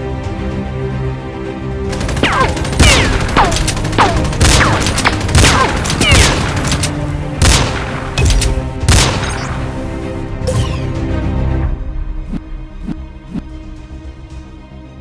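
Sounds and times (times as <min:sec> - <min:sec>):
background music: 0:00.0 - 0:15.0
gunshots with falling ring: 0:02.0 - 0:09.5.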